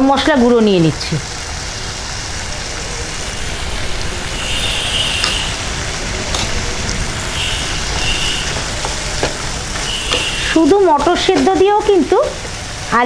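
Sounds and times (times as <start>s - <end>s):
peas sizzling in oil: 0.0s - 13.0s
low rumble: 1.8s - 9.9s
wooden spatula stirring: 8.5s - 10.6s.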